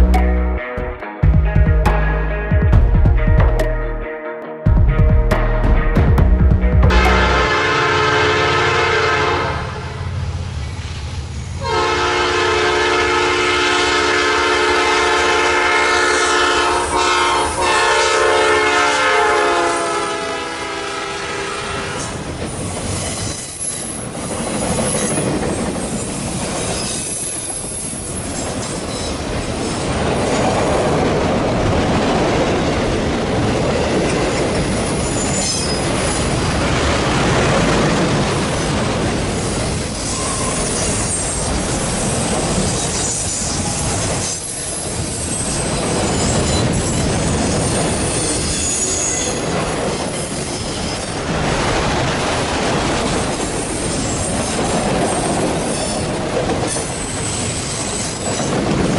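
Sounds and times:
train cars rumbling past: 5.8s - 58.9s
locomotive horn chord: 6.8s - 10.0s, 11.6s - 22.1s.

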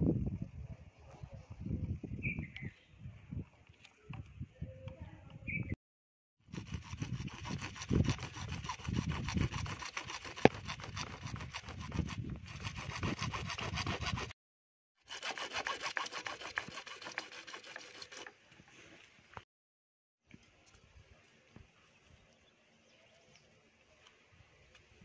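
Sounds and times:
hacksaw sawing plastic pipe: 6.5s - 14.4s, 15.0s - 18.4s.

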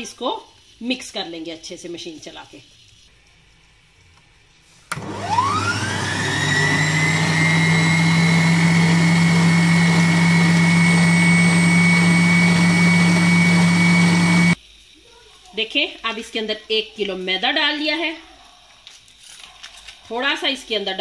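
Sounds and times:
stand mixer motor whine: 4.9s - 14.6s.

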